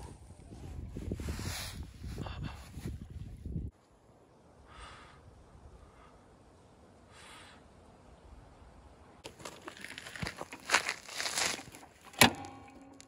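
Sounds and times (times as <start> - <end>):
faint puffs of breath: 4.6 - 6.4, 7.0 - 7.8
footsteps crunching on gravel: 9.2 - 12.2.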